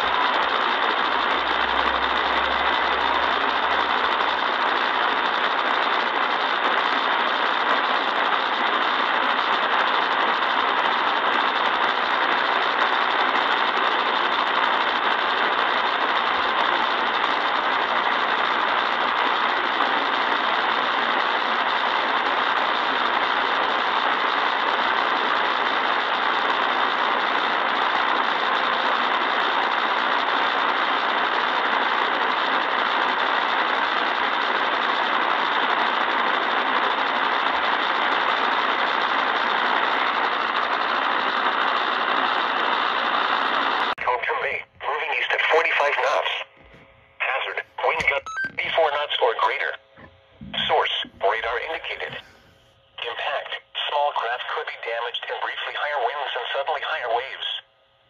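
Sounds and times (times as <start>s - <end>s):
radio static hiss: 0.0s - 57.6s.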